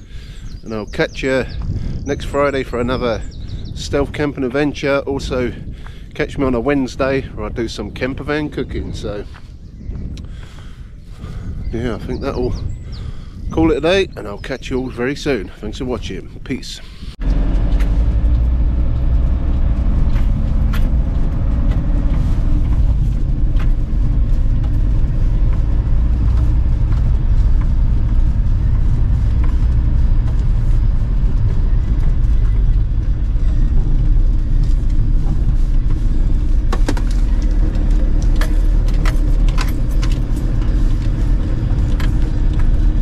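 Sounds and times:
van engine and road drone: 0.0s - 43.0s
sharp clicks and rattles: 17.2s - 43.0s.

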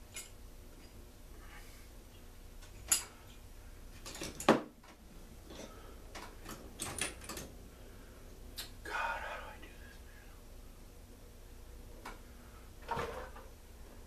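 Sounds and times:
metal parts and tools clinking: 0.1s - 1.0s, 4.0s - 4.6s, 6.4s - 7.5s.

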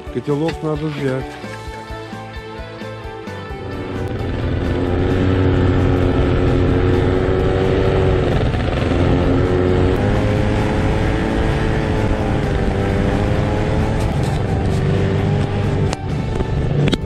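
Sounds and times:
snowmobile engine running: 3.5s - 17.0s.

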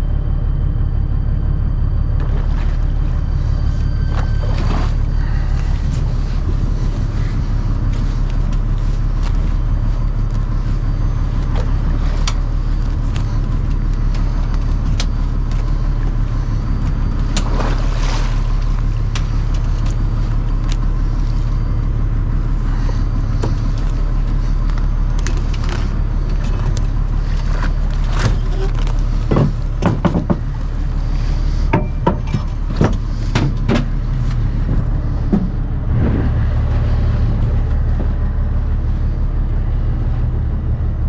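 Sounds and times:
boat engine droning: 0.0s - 41.0s
short rush of noise: 35.6s - 37.3s.

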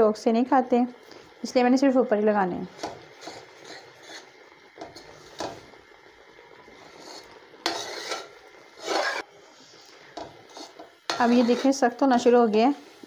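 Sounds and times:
metal spoon scraping metal pot: 3.2s - 4.3s, 6.9s - 9.2s, 10.5s - 11.8s.

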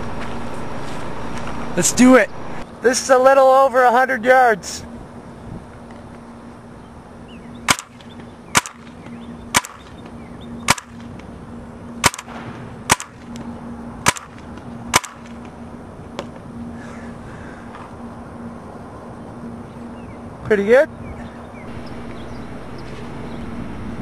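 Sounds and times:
paintball marker shots: 7.7s - 10.0s, 10.7s - 11.1s, 12.0s - 13.4s, 14.0s - 15.4s.

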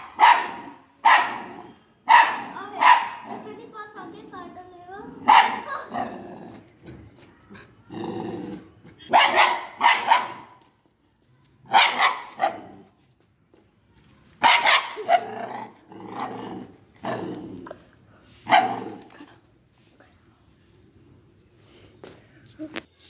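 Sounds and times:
puppy barking: 0.0s - 3.4s, 5.2s - 6.1s, 9.1s - 10.6s, 11.7s - 12.8s, 14.4s - 15.4s, 18.5s - 19.0s.

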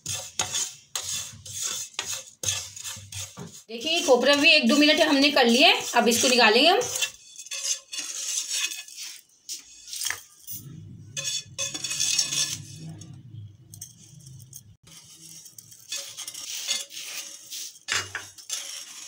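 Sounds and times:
spatula scraping frying pan: 0.0s - 19.0s
low hum: 10.6s - 14.7s.

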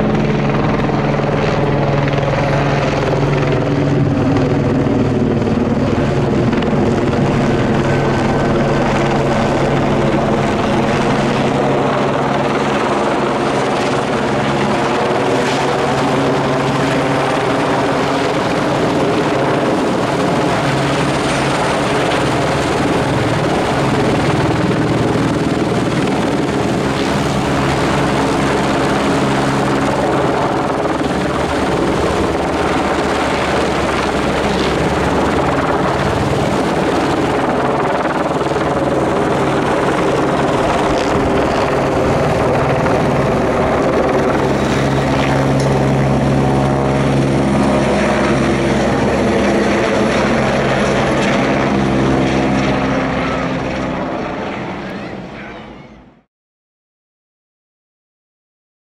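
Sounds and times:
helicopter rotor and engine: 0.0s - 56.3s.

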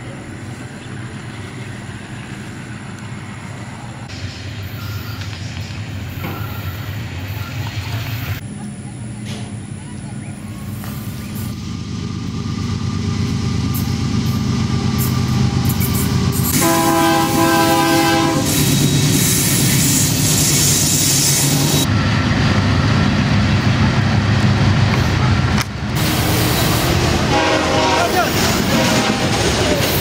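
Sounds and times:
train engine and wheels rumbling: 0.0s - 30.0s
locomotive horn: 16.4s - 18.7s, 26.0s - 29.4s
loud high hiss: 26.0s - 28.0s.

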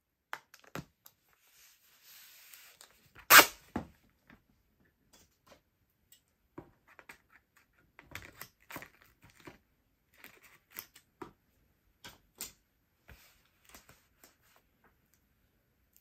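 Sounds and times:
packing tape clicks and rustles: 2.8s - 3.6s
scissors snipping tape: 3.3s - 3.6s.

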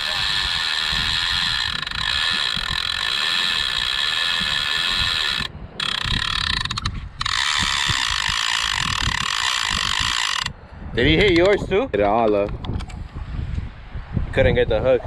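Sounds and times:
fishing reel ratchet clicking: 0.0s - 10.6s
wind rumble on microphone: 0.0s - 15.0s.

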